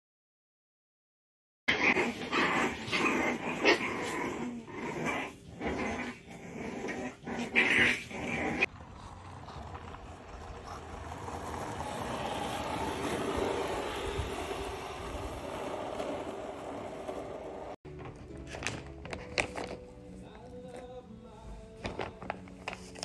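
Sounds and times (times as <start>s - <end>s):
skateboard wheels rolling on asphalt: 1.9s - 19.9s.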